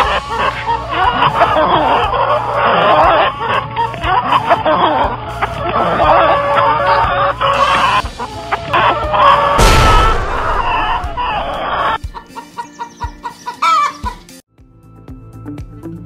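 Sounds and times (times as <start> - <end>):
hens clucking: 0.0 - 14.3
noisy rush: 7.9 - 12.0.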